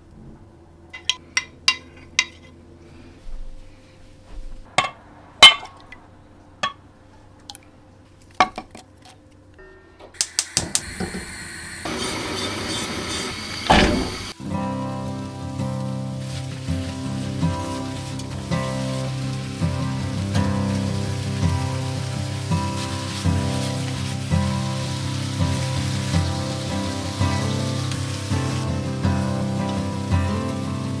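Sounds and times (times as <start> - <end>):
steady hiss: 10.2 - 31.0.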